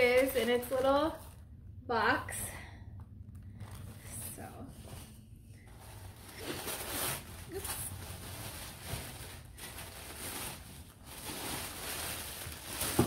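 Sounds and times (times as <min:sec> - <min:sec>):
packaging rustling and crinkling: 0:03.2 - 0:13.0.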